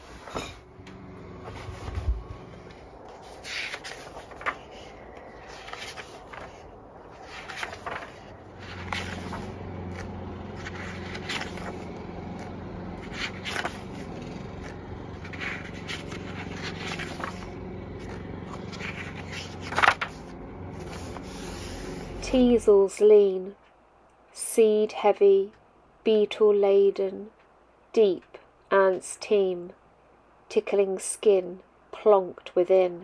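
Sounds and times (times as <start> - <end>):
low steady hum: 0.0 - 33.0
paper pages turning: 1.4 - 22.3.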